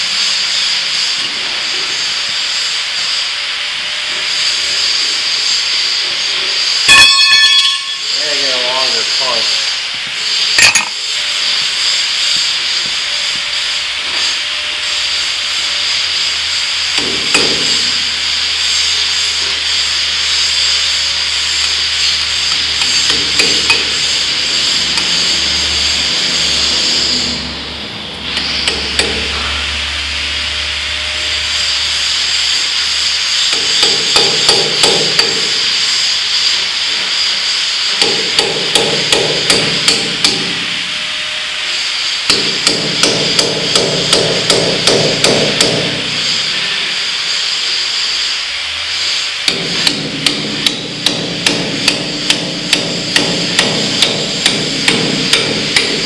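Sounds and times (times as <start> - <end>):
loud hiss: 0.0 - 56.0
hammer striking steel pin: 6.9 - 8.0, 10.6 - 11.0, 17.0 - 17.8, 22.5 - 24.0, 28.4 - 29.3, 33.5 - 35.4, 38.0 - 40.6, 42.3 - 46.0, 49.5 - 56.0.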